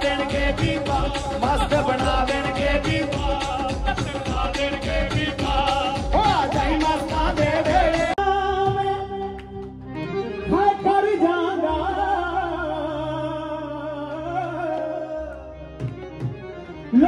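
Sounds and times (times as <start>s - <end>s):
instrumental accompaniment: 0.0s - 17.0s.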